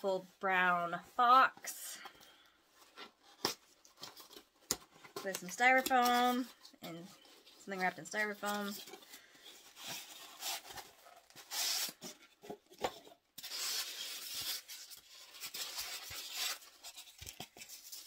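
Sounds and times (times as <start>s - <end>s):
foam wrap rustling: 8.3s - 12.8s.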